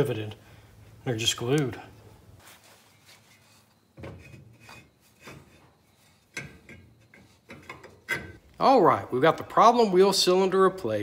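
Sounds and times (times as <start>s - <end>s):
metal scraping and rubbing: 2.5s - 8.4s.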